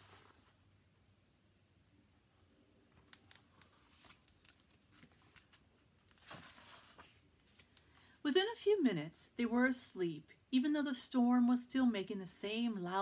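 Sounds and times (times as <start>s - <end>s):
page turning rustle: 3.0s - 8.1s.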